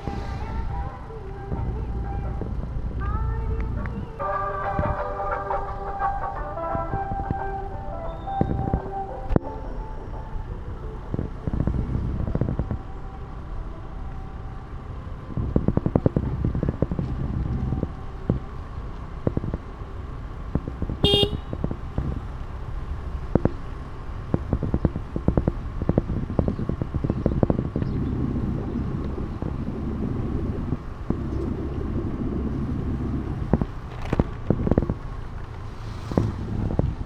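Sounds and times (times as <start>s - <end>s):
wind and road noise rumble: 0.0s - 37.0s
vehicle horn toot: 21.0s - 21.6s.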